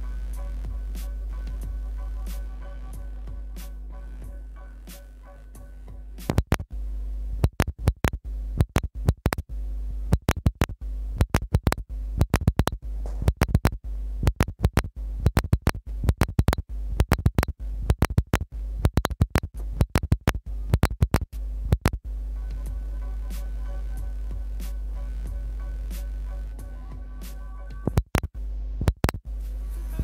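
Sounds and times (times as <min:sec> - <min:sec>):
faint music: 0:00.0 - 0:07.4, 0:21.4 - 0:30.0
steady low hum: 0:00.0 - 0:30.0
sharp clicks and crackles: 0:06.3 - 0:06.7, 0:07.4 - 0:09.4, 0:10.1 - 0:22.0, 0:27.9 - 0:29.2.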